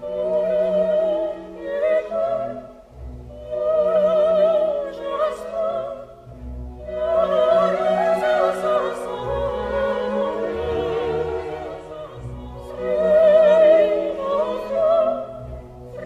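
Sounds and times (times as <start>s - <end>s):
operatic singing with vibrato: 0.0s - 16.0s
orchestra playing: 0.0s - 16.0s.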